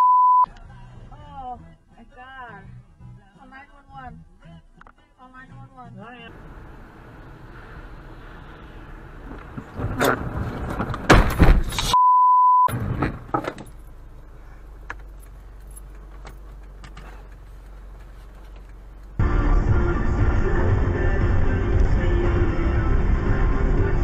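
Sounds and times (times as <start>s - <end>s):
censor beep: 0.0s - 0.5s, 12.0s - 12.7s
music: 0.5s - 6.3s, 19.2s - 24.0s
low cabin hum: 6.3s - 12.0s, 12.7s - 24.0s
car crash impact with clatter: 9.4s - 11.9s.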